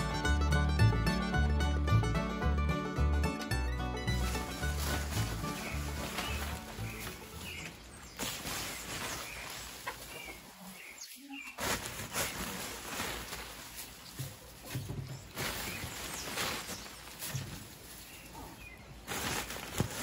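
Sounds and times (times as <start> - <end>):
light rustling: 4.1 - 20.0
small birds chirping: 4.1 - 20.0.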